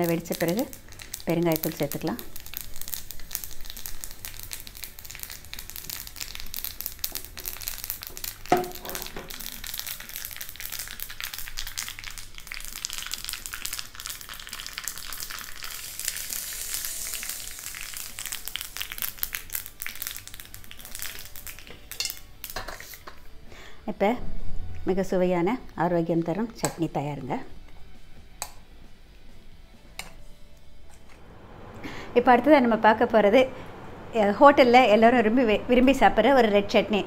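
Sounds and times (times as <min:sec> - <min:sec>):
mustard seeds popping in hot oil: 0:00.0 - 0:23.2, 0:25.7 - 0:27.4, 0:28.4 - 0:28.7.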